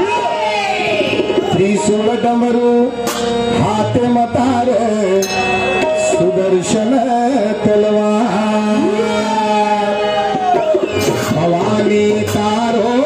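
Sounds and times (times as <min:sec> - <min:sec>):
harmonium drone: 0:00.0 - 0:13.0
drum strokes: 0:00.8 - 0:07.0
man singing: 0:01.5 - 0:13.0.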